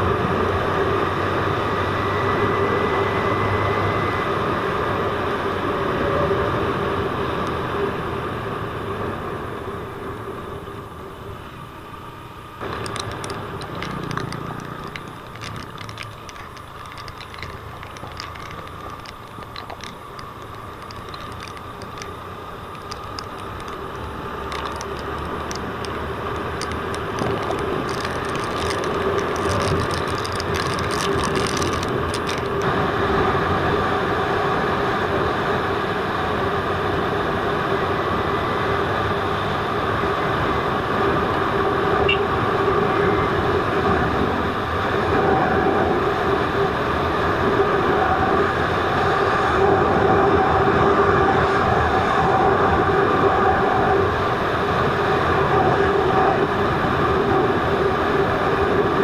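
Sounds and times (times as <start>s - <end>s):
motorcycle engine hum: 0.0s - 59.0s
crackling: 12.6s - 32.7s.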